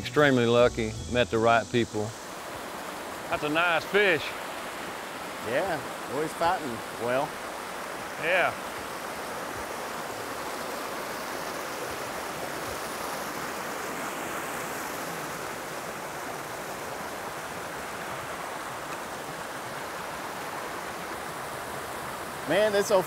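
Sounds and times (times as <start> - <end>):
water rushing over rocks: 2.0 - 23.0.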